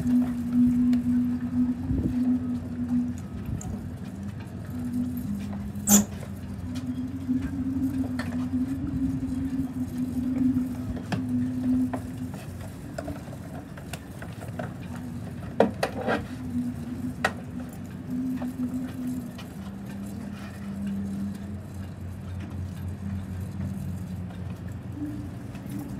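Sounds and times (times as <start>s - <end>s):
wind on microphone: 0.0s - 14.7s
wavering low hum: 0.0s - 25.9s.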